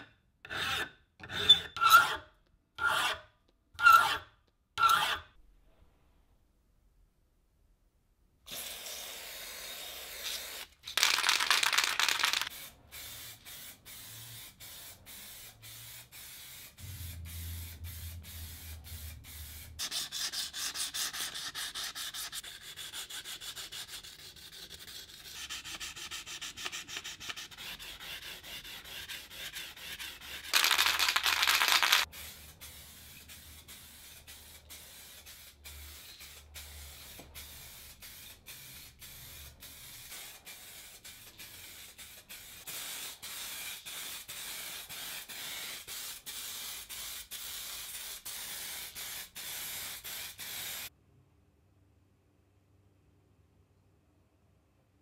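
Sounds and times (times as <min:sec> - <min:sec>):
spray-paint can hissing: 0:08.5 - 0:20.2, 0:30.4 - 0:50.9
sandpaper rubbing on metal: 0:13.2 - 0:50.9.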